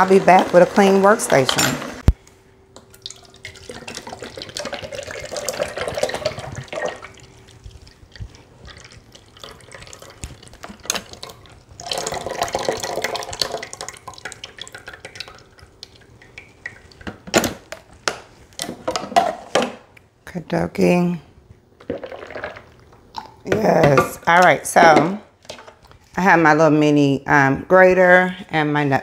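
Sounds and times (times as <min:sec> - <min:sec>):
juice trickling and dripping: 0:02.8 - 0:17.3
juice pouring in a stream: 0:02.9 - 0:16.2.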